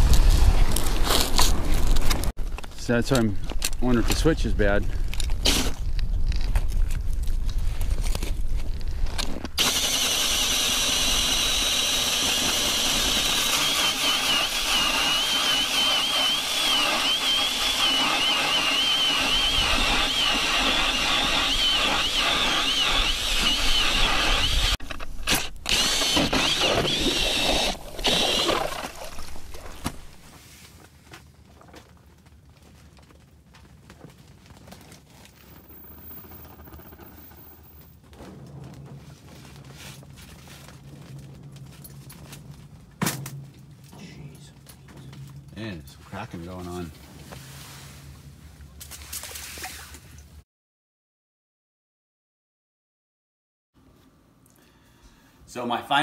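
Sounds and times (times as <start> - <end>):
cordless drill motor whining: 9.6 - 29.2.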